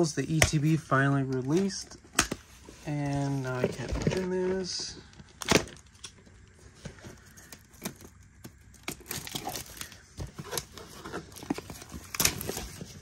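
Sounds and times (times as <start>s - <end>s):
plastic shrink wrap tearing: 7.2s - 13.0s.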